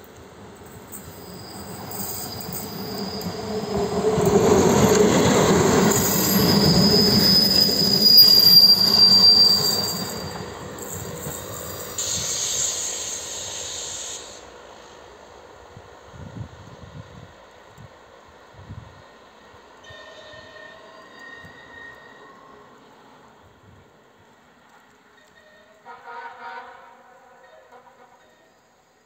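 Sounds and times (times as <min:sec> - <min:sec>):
high wheel squeal: 0:01.0 - 0:14.4, 0:19.8 - 0:22.7
hiss: 0:10.9 - 0:16.0.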